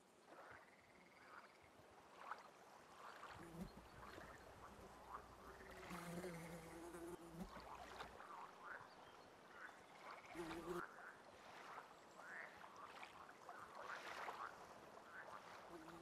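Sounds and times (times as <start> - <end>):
insect buzzing drone: 4.8 - 7.6, 10.4 - 10.8.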